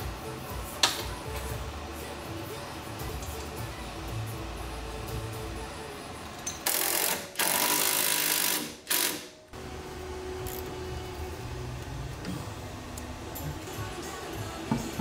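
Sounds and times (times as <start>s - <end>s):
background music: 0.0s - 15.0s
power tool bursts: 6.6s - 9.3s.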